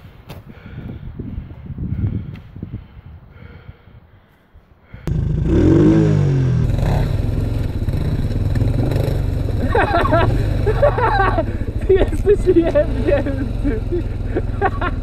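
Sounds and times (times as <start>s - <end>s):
quad bike engine revving: 5.1s - 15.0s.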